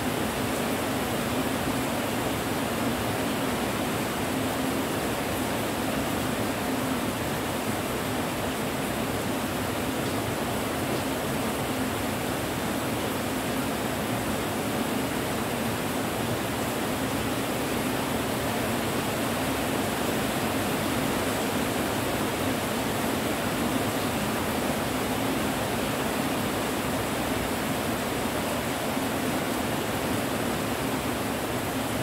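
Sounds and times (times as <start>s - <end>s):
steady rain: 0.0s - 32.0s.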